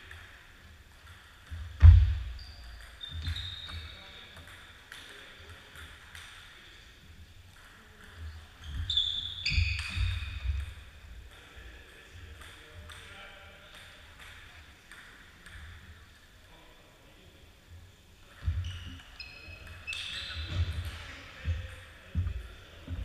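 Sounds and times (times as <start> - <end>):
shoes squeaking on wooden floor: 2.3 - 4.1, 8.6 - 10.5, 18.4 - 21.6.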